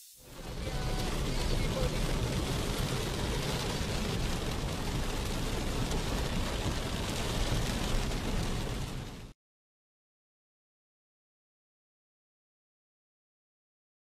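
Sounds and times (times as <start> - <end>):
heavy rain on car roof: 0.2 - 9.4.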